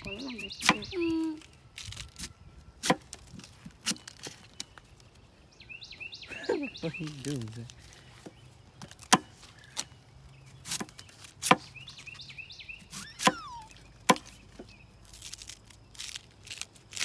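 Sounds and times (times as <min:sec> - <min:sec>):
knife chopping bamboo: 0:00.6 - 0:00.9, 0:02.8 - 0:04.3, 0:08.8 - 0:09.9, 0:10.6 - 0:11.8, 0:12.9 - 0:13.4, 0:14.0 - 0:14.7.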